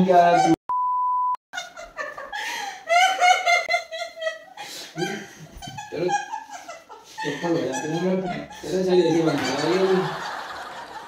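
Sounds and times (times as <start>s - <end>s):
woman laughing: 1.6s - 10.1s.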